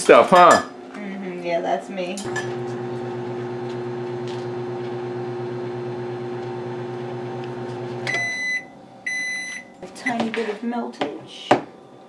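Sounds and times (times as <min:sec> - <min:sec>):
microwave oven humming: 0:02.3 - 0:09.5.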